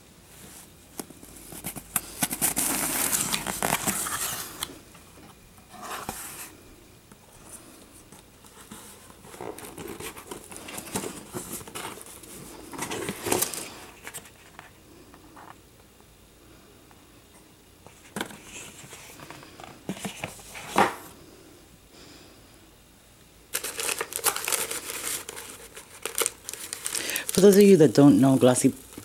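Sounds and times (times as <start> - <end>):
cardboard box rustling and scraping: 1.4 - 4.6, 5.3 - 6.5, 8.5 - 14.6.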